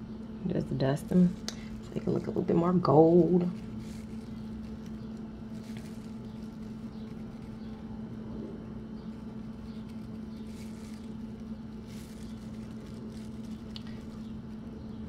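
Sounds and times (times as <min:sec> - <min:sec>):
low background hum: 0:00.0 - 0:15.0
soft brushing sounds: 0:01.1 - 0:14.8.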